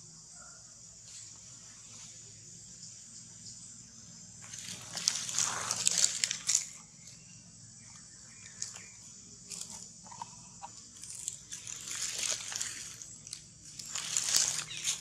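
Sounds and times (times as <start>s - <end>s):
insects buzzing: 0.0s - 15.0s
crackling rustles: 4.4s - 7.2s, 8.3s - 15.0s.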